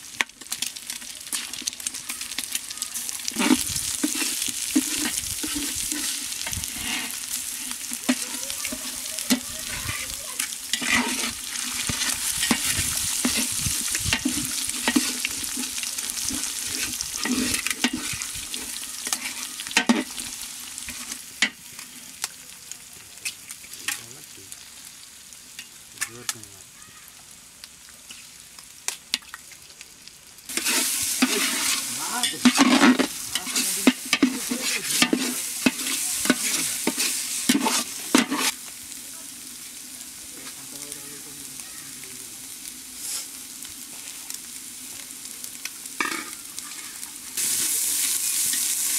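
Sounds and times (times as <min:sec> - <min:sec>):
eggs sizzling in hot oil: 0:00.0 - 0:48.9
metal spatula scraping: 0:03.2 - 0:20.3, 0:20.9 - 0:21.9, 0:30.5 - 0:38.6.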